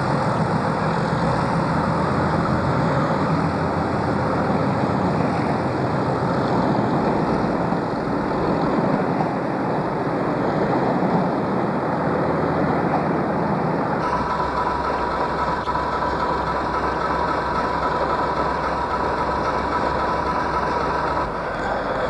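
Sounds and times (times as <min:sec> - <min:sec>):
train engine hum: 0:00.0 - 0:22.0
train pulling away: 0:00.0 - 0:22.0
high whine: 0:14.0 - 0:22.0.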